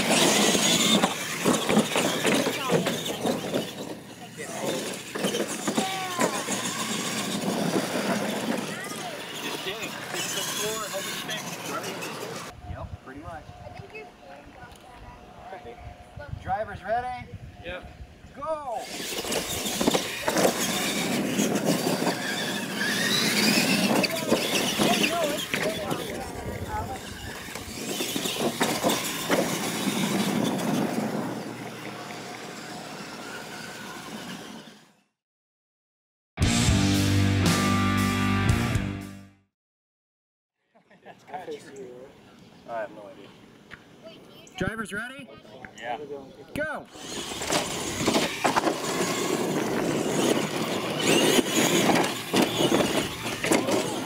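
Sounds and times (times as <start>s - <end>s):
tyres scrabbling on dirt: 0.0s - 12.6s, 18.8s - 34.6s, 47.0s - 54.0s
toy trucks driving on dirt: 0.0s - 17.3s, 18.4s - 35.1s, 41.0s - 54.0s.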